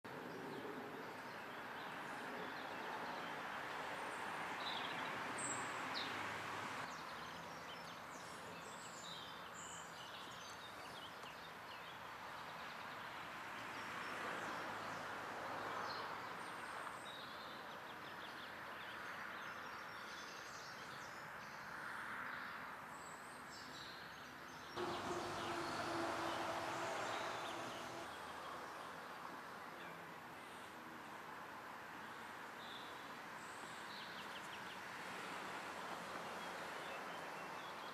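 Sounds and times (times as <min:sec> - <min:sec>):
outdoor background noise: 0:00.0 - 0:37.9.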